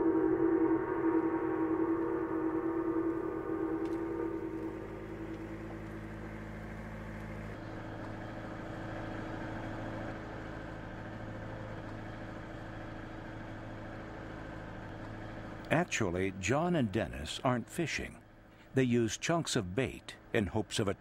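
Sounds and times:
boat engine idling: 2.1 - 16.1.

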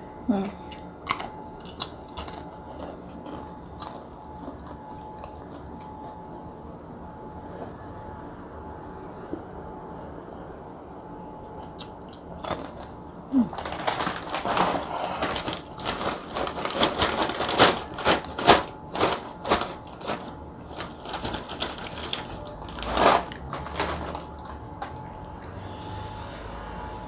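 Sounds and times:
plastic bag crinkling: 12.5 - 24.9
crackers clattering onto plate: 13.5 - 24.5.

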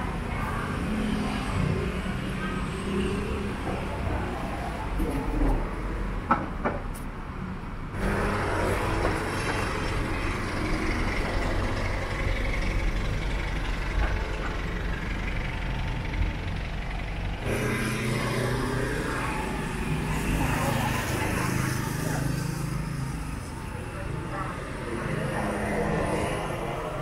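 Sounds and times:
vehicles passing: 0.0 - 27.0
low engine hum: 7.9 - 21.4.

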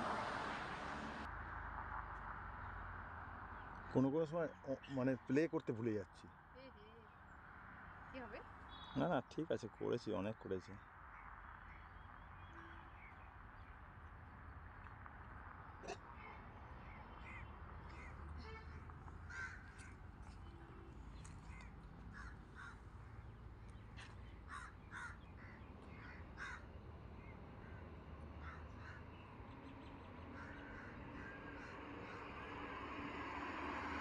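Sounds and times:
birds calling: 8.2 - 13.9, 15.8 - 33.1
low outdoor rumble: 12.2 - 34.0.

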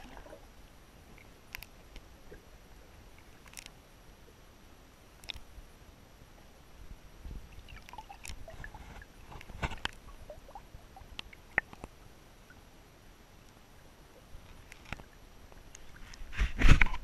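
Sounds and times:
low underwater noise: 0.0 - 17.0
underwater clicks and knocks: 7.3 - 10.2, 11.1 - 12.0.

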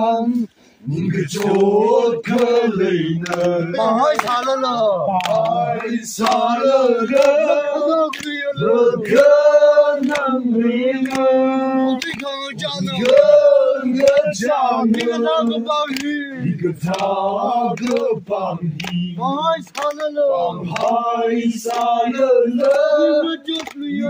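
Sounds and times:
group of voices chanting: 0.8 - 24.0
hand claps: 1.3 - 2.6, 3.2 - 8.5, 9.1 - 10.4, 11.0 - 21.0, 21.6 - 24.0.

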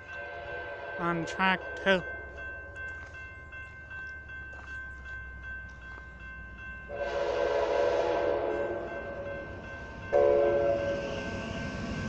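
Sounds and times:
crossing warning bell ringing: 0.0 - 12.0
train horn chord: 6.9 - 9.5, 10.1 - 11.9.

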